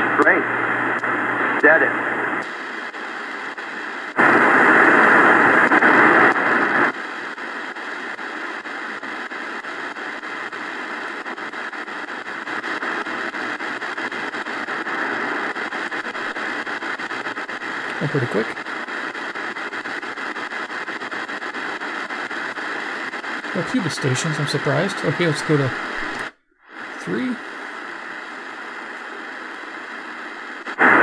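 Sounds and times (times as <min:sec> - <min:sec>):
shortwave radio static: 0:00.0 - 0:31.0
tuning dial ticks: 0:00.9 - 0:01.1.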